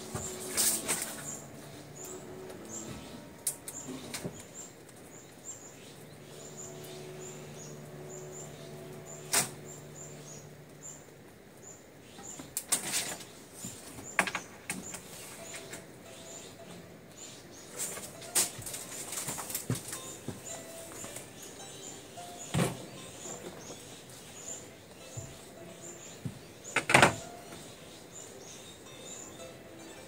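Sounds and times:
faint high chirps: 19.9 - 30.0.

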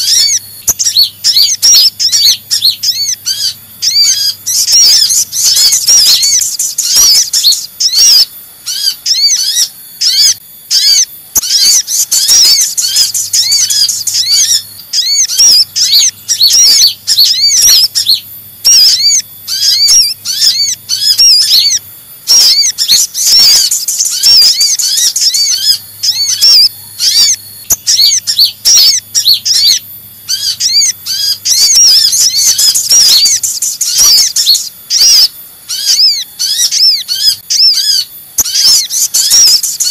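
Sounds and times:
sunbirds chirping: 0.0 - 39.9.

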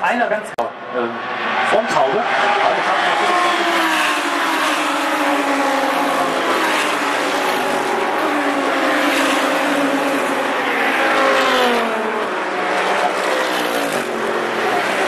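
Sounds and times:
race cars passing at full throttle: 0.0 - 15.0.

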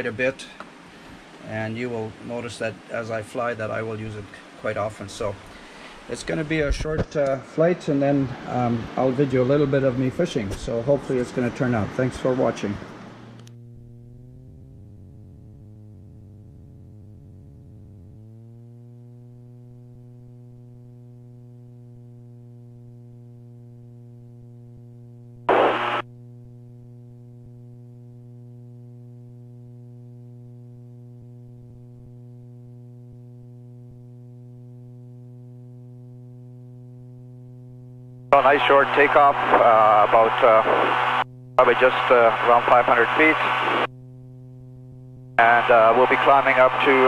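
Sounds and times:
aircraft engine humming: 5.1 - 6.5, 12.5 - 23.2, 33.5 - 47.0.

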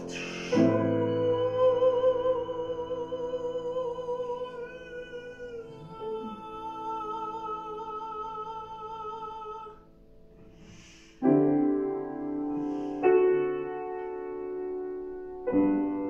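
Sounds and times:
soprano singing with vibrato: 0.0 - 9.9
piano chords ringing: 0.0 - 16.0.

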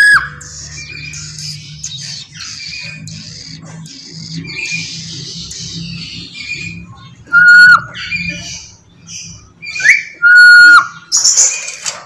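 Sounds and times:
parrot piercing whistle: 0.0 - 0.4, 7.3 - 7.8, 9.7 - 10.9
parrot raspy chatter: 0.0 - 9.5.

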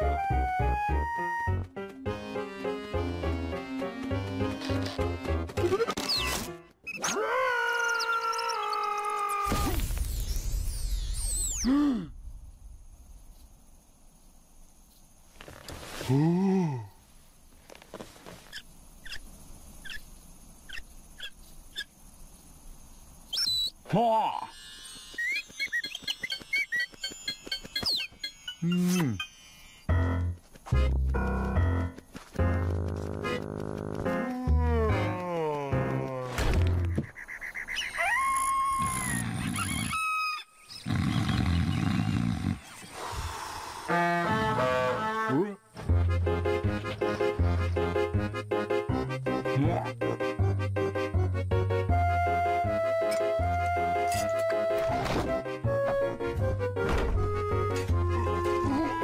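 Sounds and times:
cartoon creature deep vocal hum: 11.6 - 12.2, 16.1 - 17.0, 34.2 - 36.4
faint high chirps: 23.2 - 29.9.

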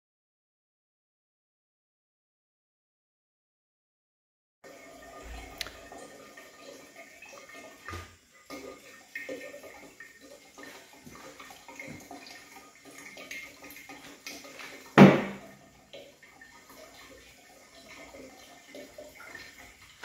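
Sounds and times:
water trickling and gurgling: 4.6 - 20.0.

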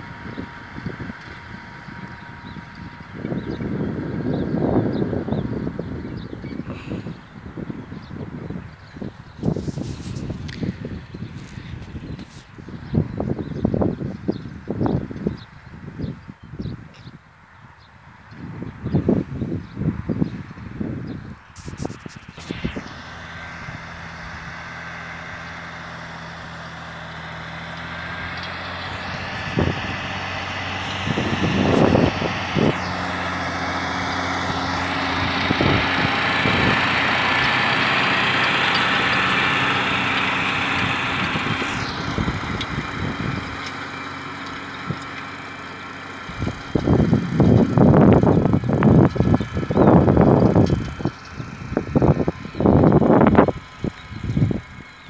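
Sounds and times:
tractor diesel engine running: 0.0 - 55.0
loud rumbling: 21.5 - 54.9.

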